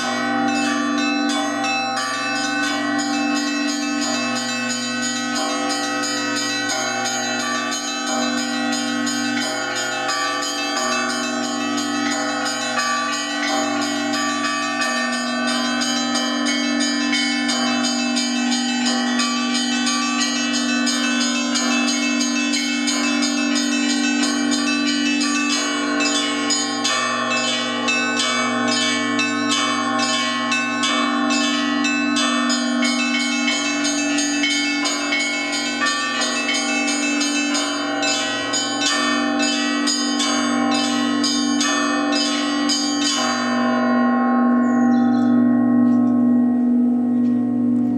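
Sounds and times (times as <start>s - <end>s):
hum of large bells: 0.0s - 47.9s
small treble bells struck: 0.0s - 47.9s.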